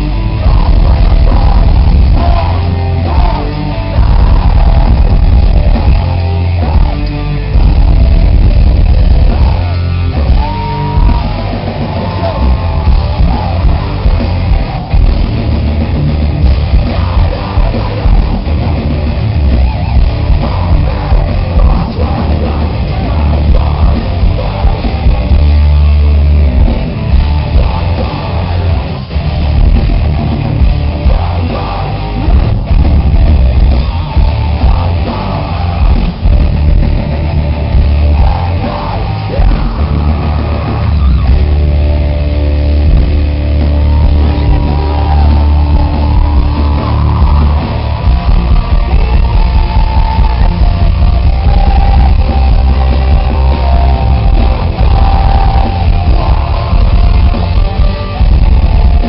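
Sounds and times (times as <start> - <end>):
distorted guitars: 0.0 - 59.0
metalcore band playing: 0.0 - 59.0.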